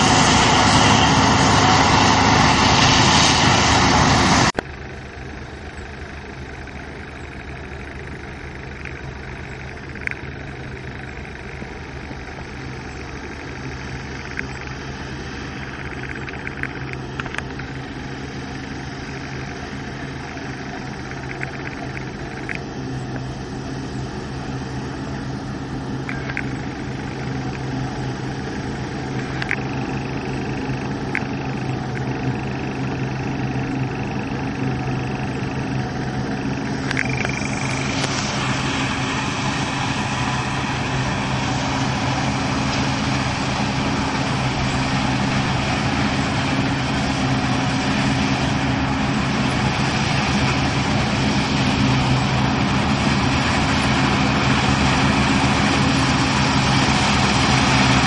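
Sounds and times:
combine harvester machinery drone: 0:00.0 - 0:58.0
faint short ticks: 0:06.6 - 0:12.2.

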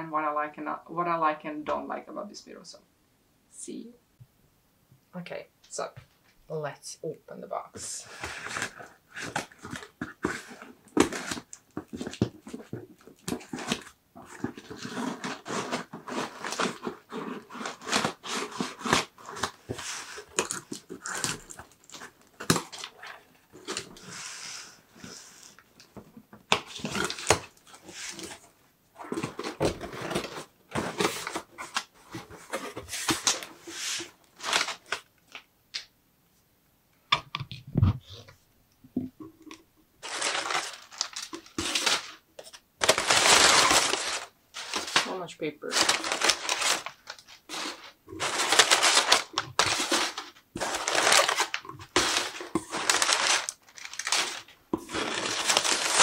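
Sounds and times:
cardboard box handled and opened: 0:08.1 - 0:24.3, 0:26.5 - 0:35.0, 0:40.0 - 0:56.0.

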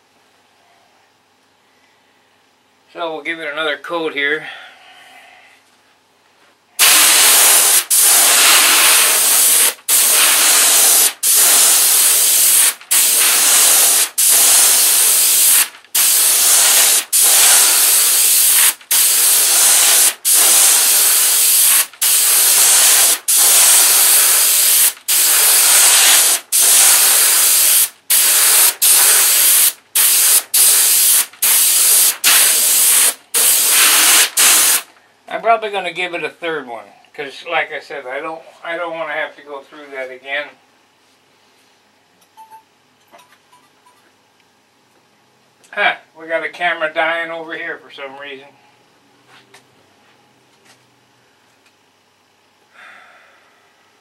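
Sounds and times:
airbrush spraying paint: 0:06.8 - 0:34.9.

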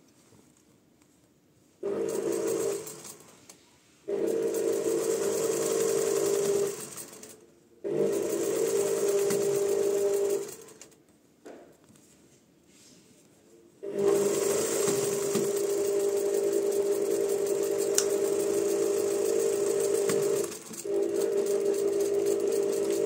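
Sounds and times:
sewing machine stitching: 0:01.8 - 0:03.4, 0:04.1 - 0:11.0, 0:13.8 - 0:23.0.

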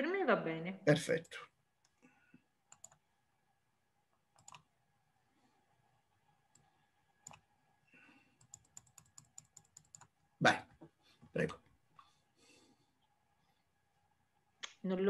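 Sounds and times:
computer clicks: 0:02.7 - 0:03.0, 0:04.3 - 0:04.7, 0:06.5 - 0:07.4, 0:08.4 - 0:10.2.

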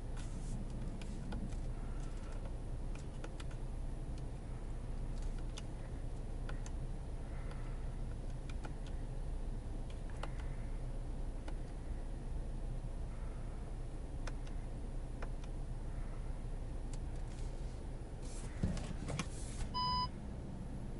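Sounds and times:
car engine idling: 0:00.0 - 0:20.9
steering wheel button clicks: 0:14.2 - 0:14.6.

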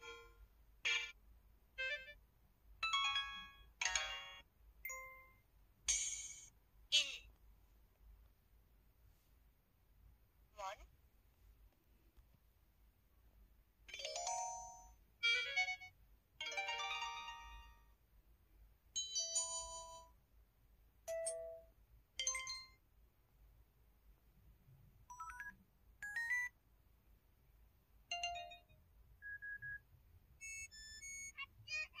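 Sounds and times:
phone alert chimes and jingles: 0:28.1 - 0:29.8, 0:30.4 - 0:31.4.

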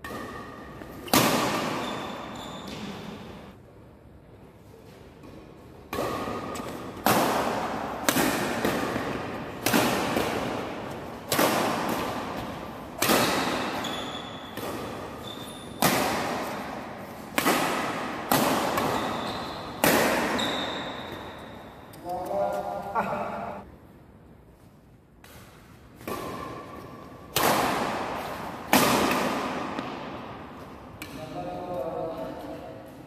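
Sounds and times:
badminton racket striking shuttlecock: 0:00.0 - 0:03.1, 0:05.9 - 0:22.6.

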